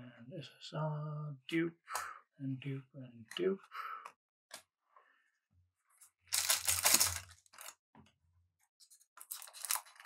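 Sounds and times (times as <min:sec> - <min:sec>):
wrapper rustling: 0:06.2 - 0:07.8, 0:09.2 - 0:10.0
foil wrapper ripping: 0:06.3 - 0:07.7.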